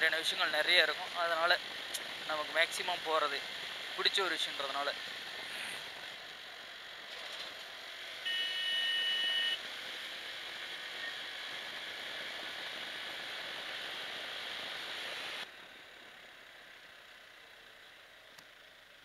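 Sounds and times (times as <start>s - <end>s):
vehicle horn: 8.2s - 9.6s
motorcycle wind and road noise: 9.6s - 15.4s.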